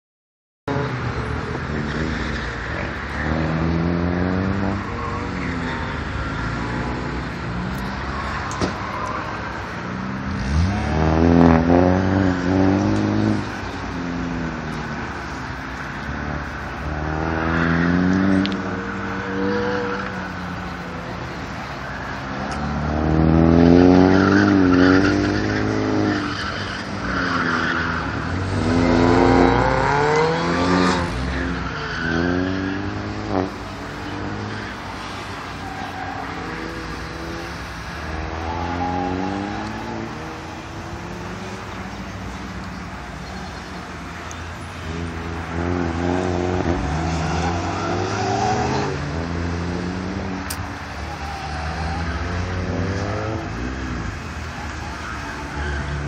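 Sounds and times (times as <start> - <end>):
car engine revving: 0.7 - 56.0.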